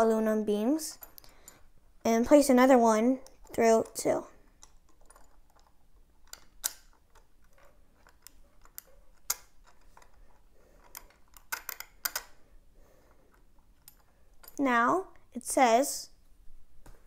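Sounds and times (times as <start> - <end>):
small metal parts clicking: 0.9 - 1.7, 4.4 - 12.4, 13.3 - 14.6.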